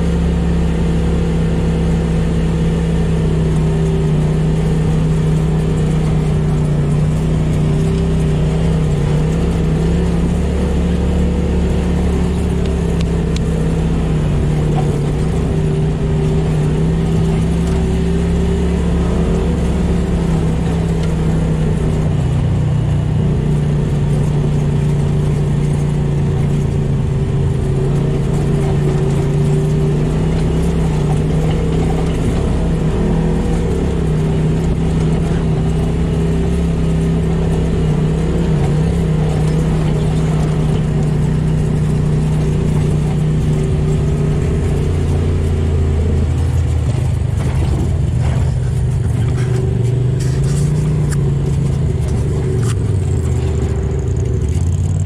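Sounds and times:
vehicle engine running: 0.0s - 55.0s.

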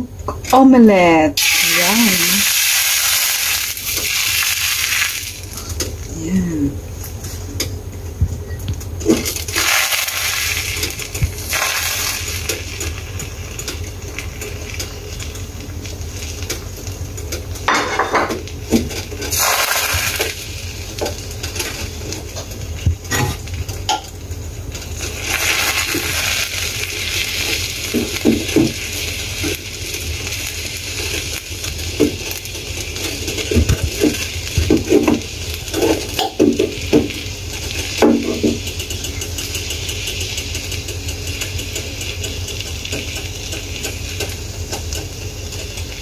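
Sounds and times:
eggs sizzling in a frying pan: 1.4s - 6.1s, 8.9s - 46.0s
kitchenware clinking: 17.7s - 19.4s.

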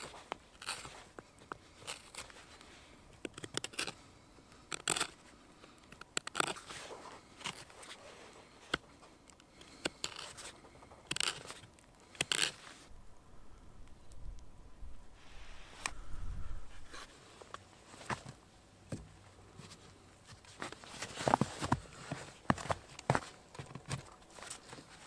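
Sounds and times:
knife shaving wood: 0.0s - 12.9s.

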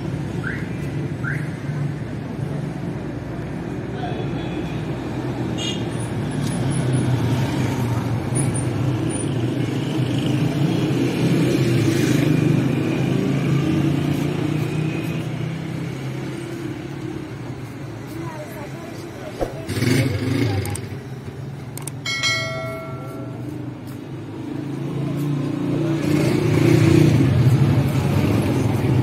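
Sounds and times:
car engines humming: 5.9s - 29.0s
passers-by talking: 12.2s - 29.0s.

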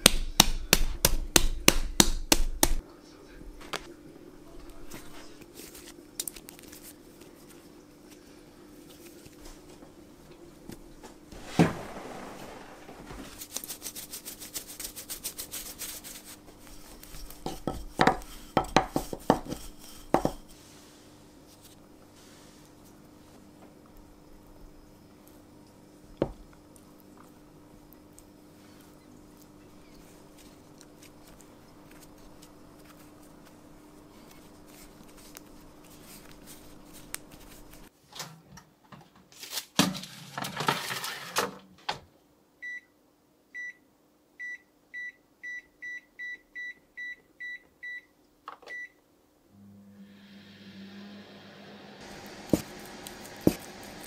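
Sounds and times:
oven humming: 8.0s - 13.4s, 49.5s - 54.0s
rustling and knocks: 17.2s - 20.5s.

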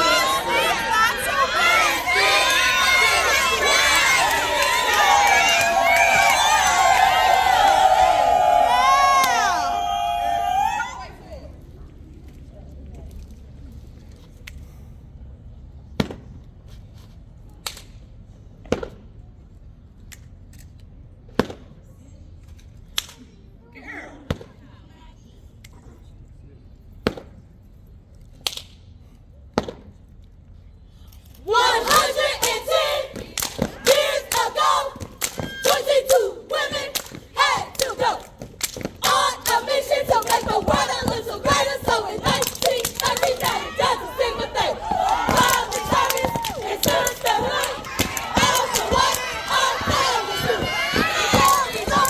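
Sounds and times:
high voices shouting and cheering: 0.0s - 11.6s, 31.4s - 38.4s, 39.0s - 52.0s
sharp claps and thumps: 44.8s - 52.0s.

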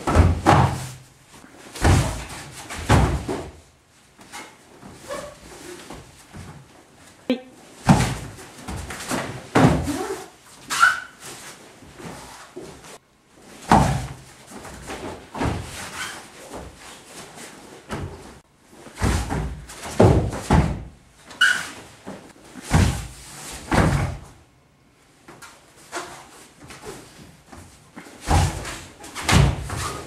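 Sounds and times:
bodies thudding on padded mat: 0.0s - 1.0s, 1.7s - 3.7s, 7.8s - 10.0s, 13.6s - 16.8s, 18.9s - 21.0s, 22.7s - 24.4s, 28.2s - 30.0s.

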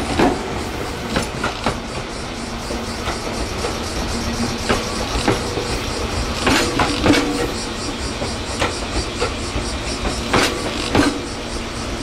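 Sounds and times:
train rumble: 0.0s - 12.0s
train wheels clacking: 0.0s - 12.0s.

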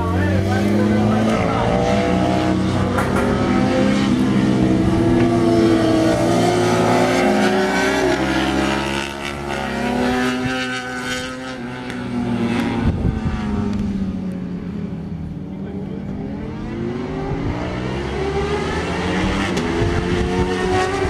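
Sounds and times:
motorcycles racing past: 0.0s - 15.0s, 15.7s - 21.0s.

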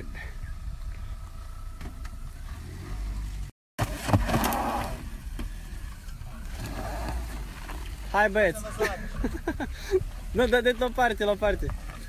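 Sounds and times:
car engine revving: 0.7s - 8.4s.

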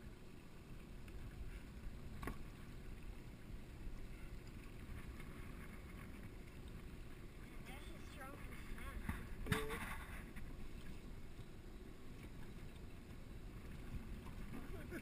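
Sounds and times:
water lapping against boat hull: 0.0s - 15.0s.

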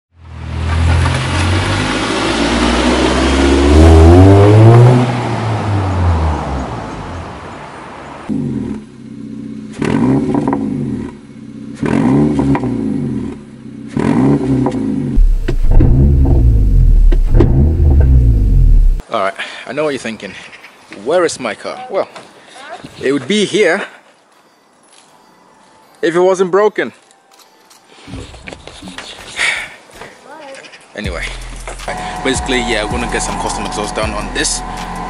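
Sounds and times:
car engine revving: 0.6s - 7.2s, 9.7s - 19.0s, 31.6s - 35.0s
low rumble of car under load: 14.6s - 19.0s
exhaust pops and crackles: 15.2s - 19.0s.

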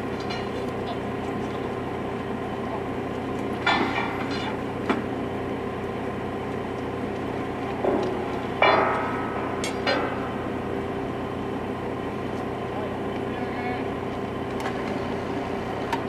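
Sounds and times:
motor car engine idling: 0.0s - 16.0s
sharp metal clanks: 7.8s - 10.6s.

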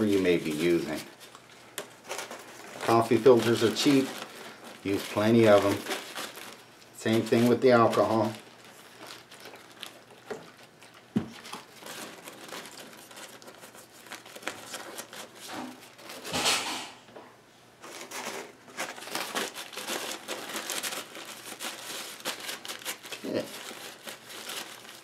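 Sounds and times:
paper filter rubbing on metal: 2.8s - 6.4s.

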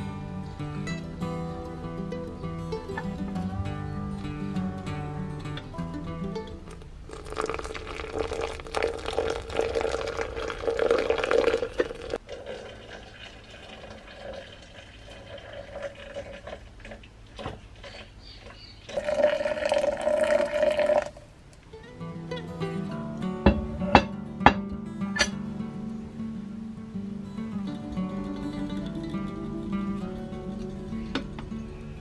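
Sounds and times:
water pouring into glass: 7.1s - 17.0s, 18.9s - 21.2s.

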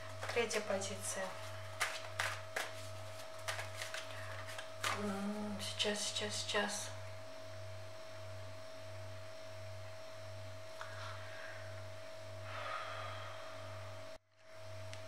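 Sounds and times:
cards rustling: 0.0s - 5.3s
pulsing low hum: 2.9s - 14.9s.

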